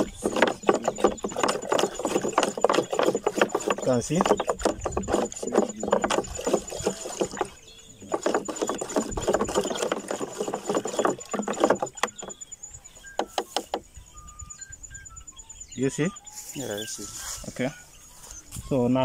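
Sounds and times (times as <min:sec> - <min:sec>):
water sloshing in plastic tank: 0:00.0 - 0:14.0.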